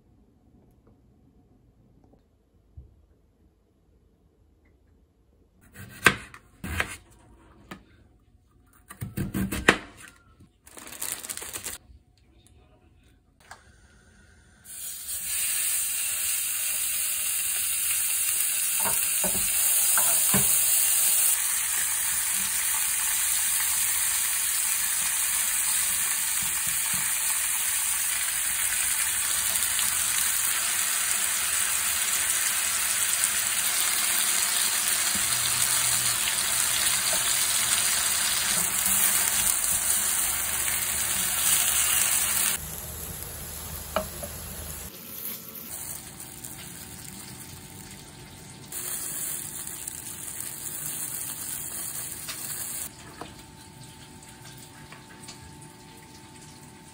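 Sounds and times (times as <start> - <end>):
pork sizzling in a grill pan: 14.7 - 48.0, 48.7 - 52.9.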